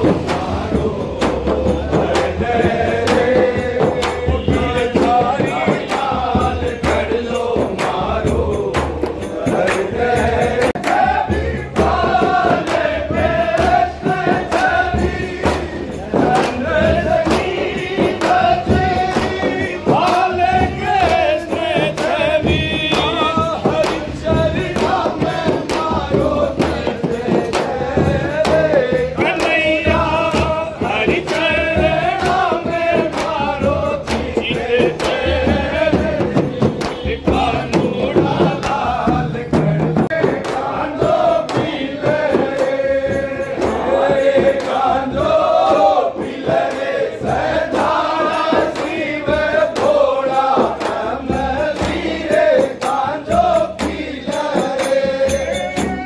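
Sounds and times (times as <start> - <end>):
frame drums beating: 0.0 - 56.0
men singing in chorus: 0.0 - 56.0.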